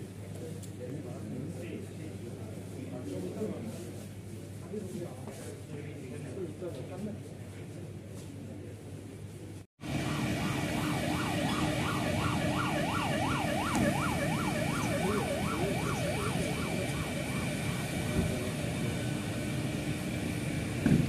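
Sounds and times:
siren yelping: 9.8 - 19.9.

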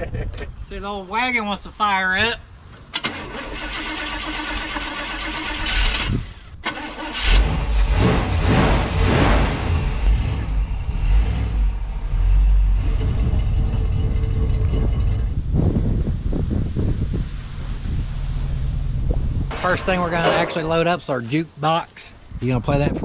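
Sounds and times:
car engine cranking and revving: 2.9 - 20.6.

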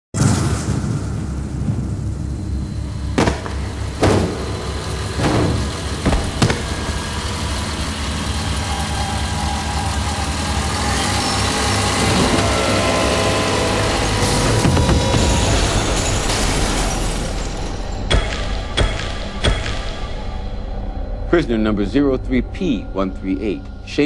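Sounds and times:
engine running steadily: 2.6 - 16.9
sharp knocks: 3.2 - 7.3.

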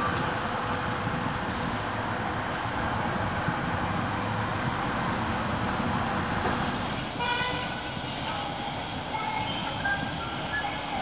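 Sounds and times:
urban traffic noise: 0.0 - 11.0
car horn toot: 7.2 - 7.8.

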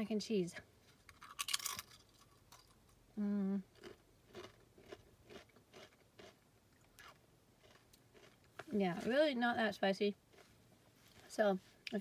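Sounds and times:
person humming mmm: 3.2 - 3.7
soft chewing: 3.6 - 9.1, 10.3 - 12.0.

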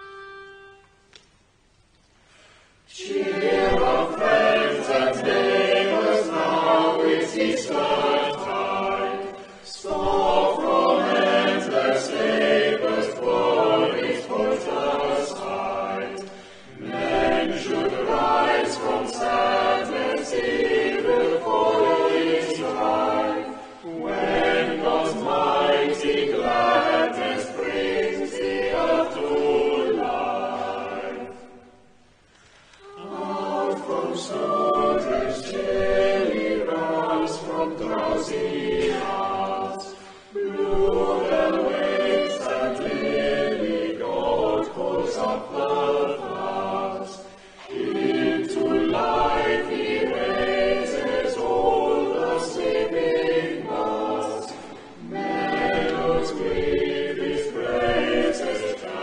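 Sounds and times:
choir singing a hymn: 2.9 - 59.0.

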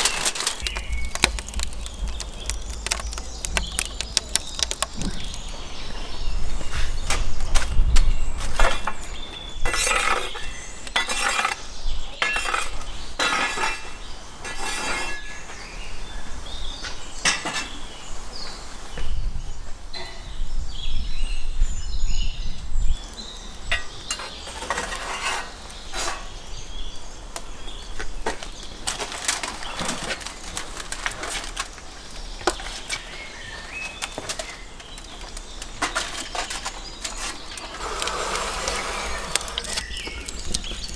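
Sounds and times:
wood fire crackling: 0.0 - 7.7, 22.2 - 40.9.

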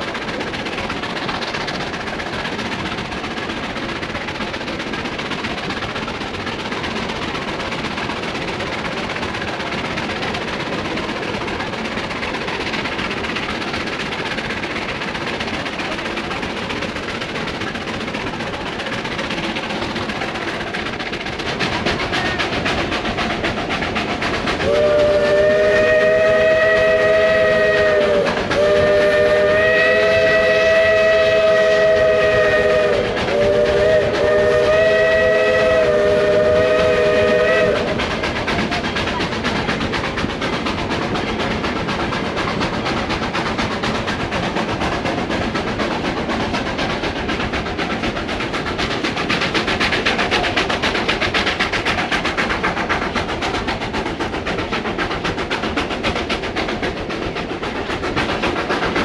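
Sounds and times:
train rumble and rail clatter: 0.0 - 59.0
locomotive chord whistle blasts: 24.6 - 37.8.

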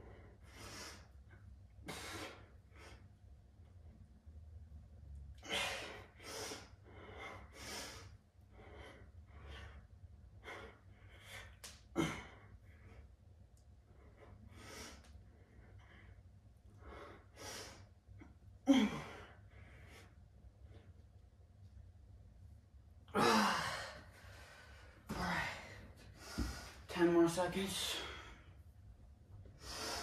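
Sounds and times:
man grunting with effort: 23.1 - 24.0.

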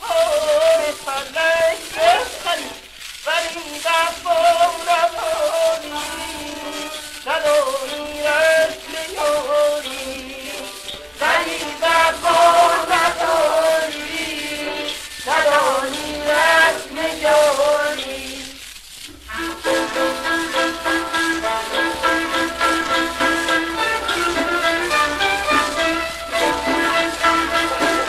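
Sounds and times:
man singing ornamented phrases: 0.0 - 18.6
instrumental accompaniment: 1.8 - 28.0.

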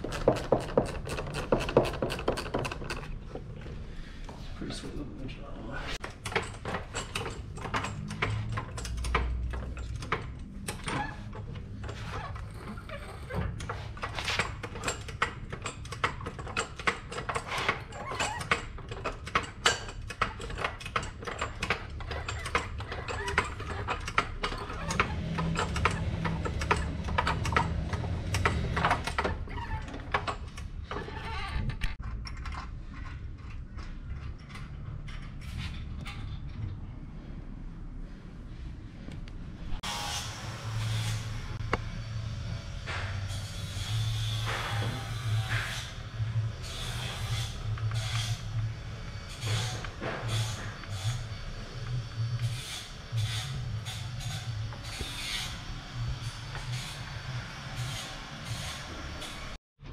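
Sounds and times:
metal parts and tools clattering: 6.0 - 36.7.

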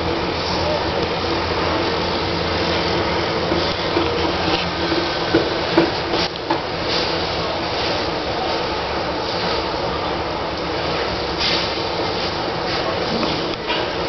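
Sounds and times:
train rumbling: 0.0 - 14.0.

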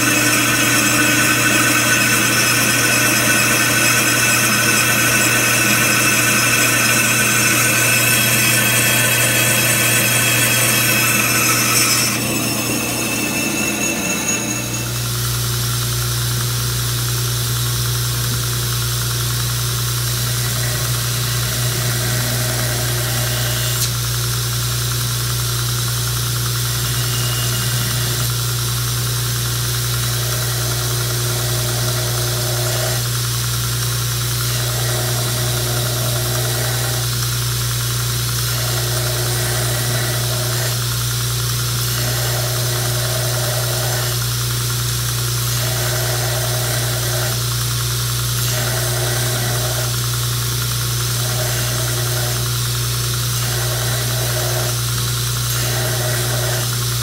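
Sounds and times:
knife grinding on belt: 0.0 - 15.2
belt grinder motor hum: 0.0 - 16.4, 19.8 - 24.1, 26.5 - 57.0.

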